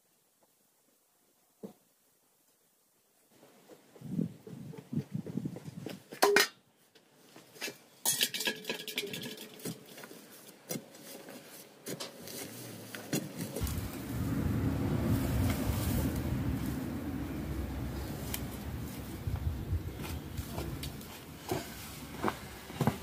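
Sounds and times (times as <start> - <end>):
steady low rumble: 13.6 - 22.7.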